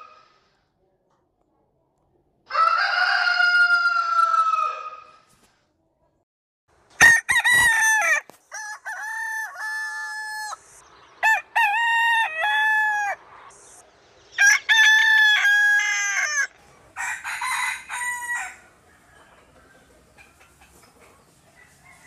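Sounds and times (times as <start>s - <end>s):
rooster crowing: 2.5s - 5.0s, 7.0s - 10.6s, 11.2s - 13.2s, 14.4s - 19.8s, 21.5s - 22.0s.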